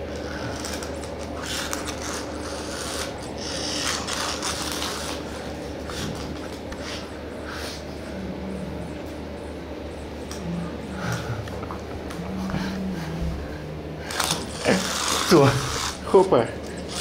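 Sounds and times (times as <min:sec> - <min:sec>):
cat scratching a toy: 0:00.2 - 0:07.1, 0:14.1 - 0:17.0.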